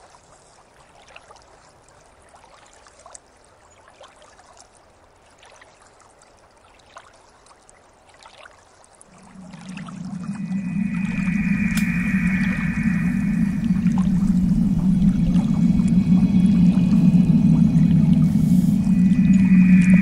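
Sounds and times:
low steady hum: 9.1s - 20.0s.

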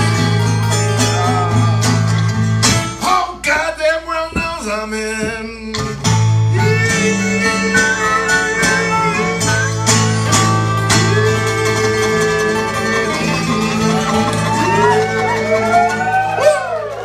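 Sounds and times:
acoustic guitar: 0.0s - 17.0s
harmonica bending notes: 6.2s - 17.0s.

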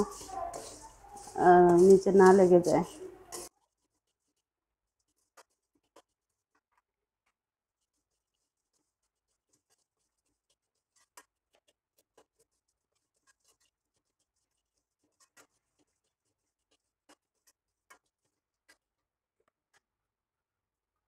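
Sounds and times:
metal spoon scraping a pan: 0.0s - 4.3s, 7.9s - 18.1s.

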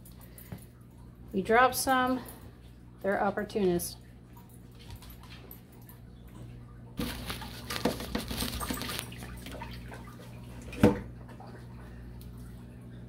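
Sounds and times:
aquarium water splashing: 3.6s - 13.0s.

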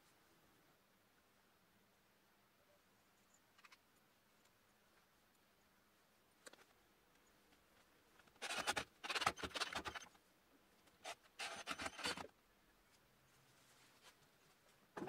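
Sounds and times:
cordless drill driving screws: 8.4s - 10.1s, 11.0s - 12.3s.

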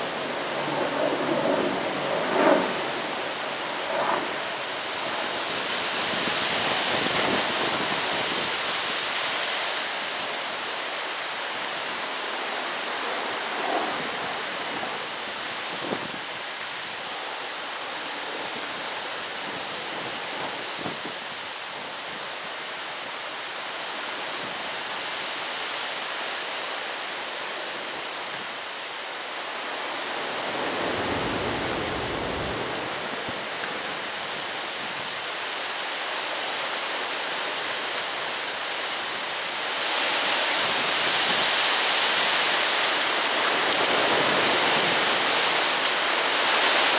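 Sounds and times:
strong wind blowing: 0.0s - 10.9s, 11.7s - 22.2s, 29.5s - 35.5s
wind buffeting microphone: 13.5s - 16.6s, 18.2s - 22.0s, 30.4s - 35.2s.

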